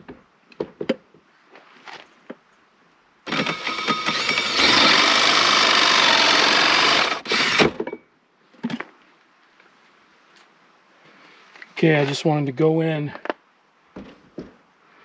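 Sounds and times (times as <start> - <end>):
cordless drill boring into wood: 3.3 - 7.8.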